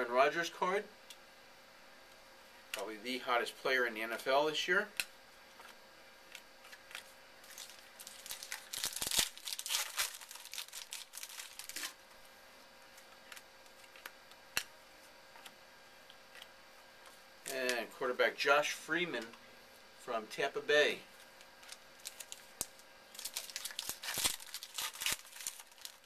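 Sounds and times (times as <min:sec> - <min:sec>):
wrapper tearing and crinkling: 0:06.9 - 0:12.0, 0:21.6 - 0:26.0.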